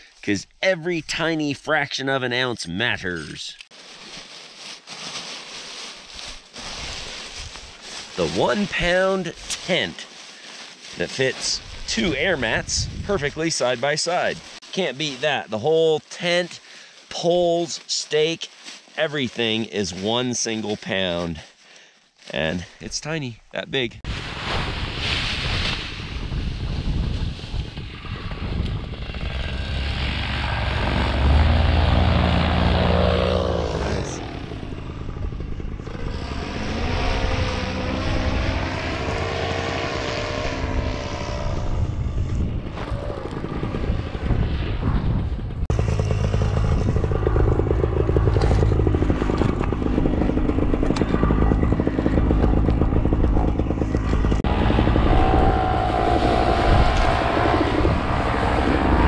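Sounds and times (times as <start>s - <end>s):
paramotor engine and propeller: 27.1s - 59.0s.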